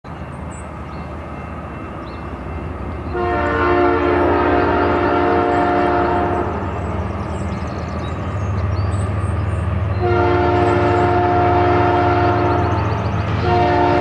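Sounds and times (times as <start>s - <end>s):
train rumbling: 0.1s - 14.0s
locomotive air horn blast: 3.1s - 6.6s, 10.0s - 12.8s, 13.4s - 14.0s.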